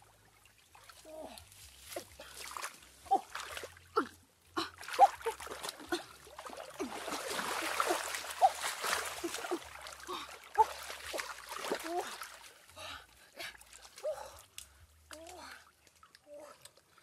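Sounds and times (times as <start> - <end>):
rush of water: 0.0 - 12.7
water splashing and trickling: 0.0 - 17.0.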